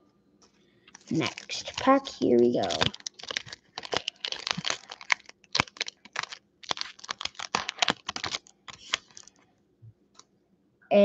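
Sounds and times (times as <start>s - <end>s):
foil wrapper crinkling and tearing: 1.0s - 9.4s.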